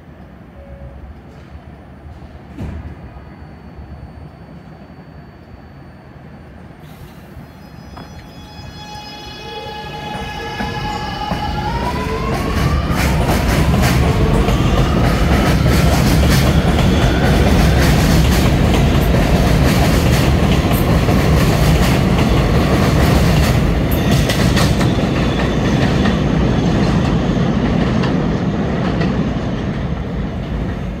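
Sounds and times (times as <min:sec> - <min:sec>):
train rumbling past: 0:00.0 - 0:31.0
train motor whine: 0:06.9 - 0:19.1.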